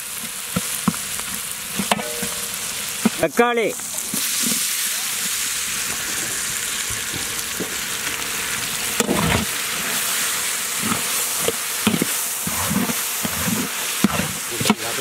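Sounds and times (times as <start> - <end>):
vegetables sizzling in hot oil: 0.0 - 15.0
metal ladle scraping a pot: 10.7 - 14.8.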